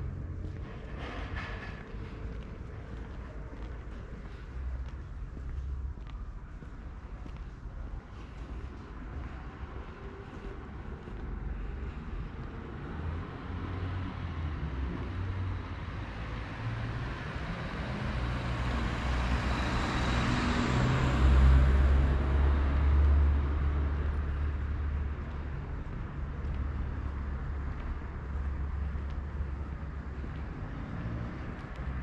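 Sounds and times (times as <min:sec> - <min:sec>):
car driving past: 0:11.9 - 0:32.0.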